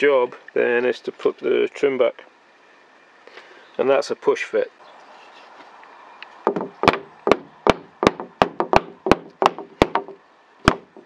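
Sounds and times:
wooden block knocks on trim: 6.5s - 11.0s.

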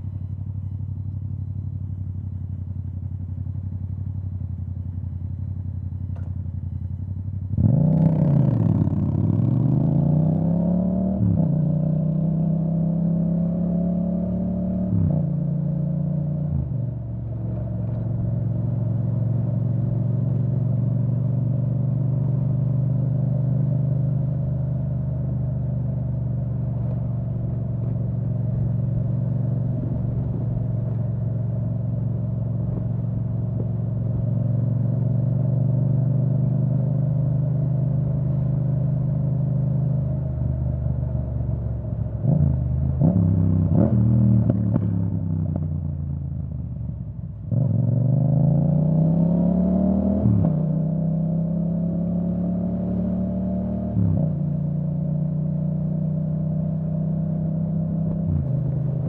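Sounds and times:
motorcycle engine revving: 7.5s - 16.2s, 47.5s - 59.0s.

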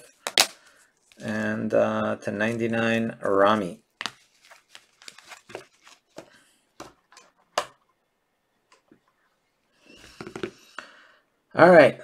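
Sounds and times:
handling rustle: 4.0s - 7.5s.

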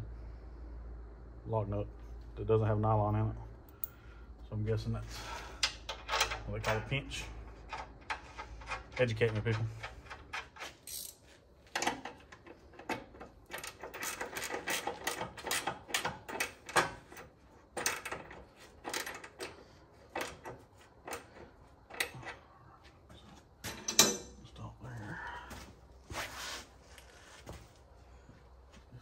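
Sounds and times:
ratchet wrench clicking: 10.0s - 11.2s.

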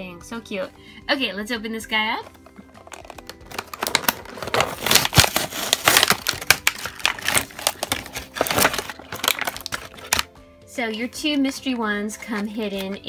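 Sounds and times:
plastic packaging crinkling: 2.2s - 10.3s, 12.1s - 13.0s.

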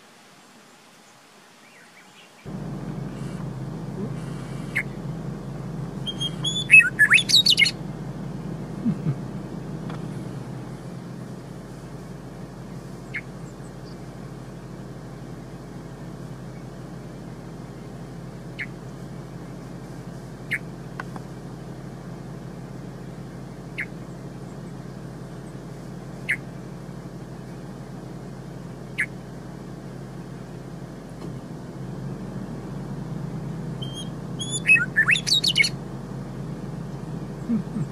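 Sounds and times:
low background hum: 0.0s - 37.9s
bird song: 0.4s - 2.5s, 4.4s - 5.0s, 6.0s - 7.8s, 13.0s - 14.2s, 18.5s - 19.1s, 20.4s - 20.7s, 23.7s - 26.6s, 28.9s - 29.2s, 33.8s - 35.8s
bird call notes: 4.1s - 5.1s, 5.9s - 7.9s, 13.0s - 14.2s, 18.5s - 19.0s, 20.5s - 20.7s, 23.7s - 25.6s, 26.2s - 26.5s, 28.9s - 29.2s, 33.8s - 35.8s.

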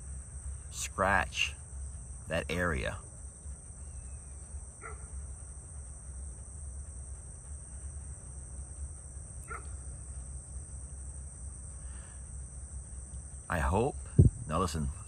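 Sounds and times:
crickets and insects chirping: 0.0s - 15.0s
dog barking: 4.8s - 5.2s, 9.4s - 9.8s.

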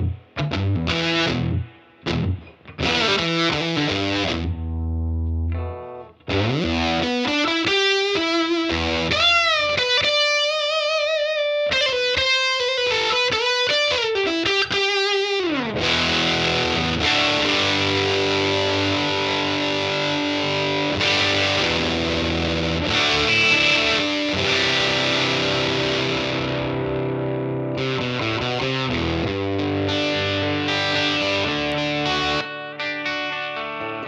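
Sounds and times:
overdriven electric guitar: 0.0s - 34.0s.

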